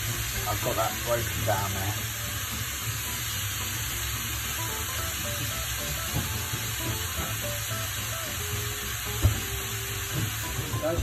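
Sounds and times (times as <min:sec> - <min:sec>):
faint background music: 0:00.0 - 0:11.0
meat sizzling in a pan: 0:00.0 - 0:11.0.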